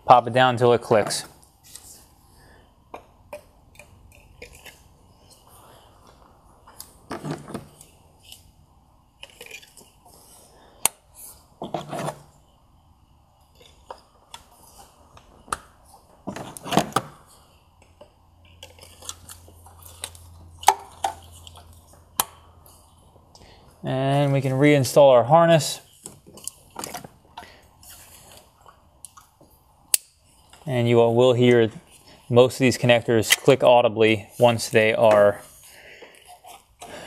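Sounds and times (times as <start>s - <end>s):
clattering handling noises: 6.0s - 8.4s.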